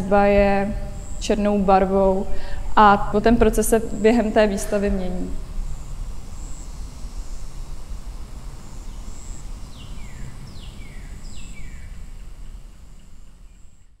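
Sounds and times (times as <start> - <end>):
low rumble and hiss: 0.0 - 14.0.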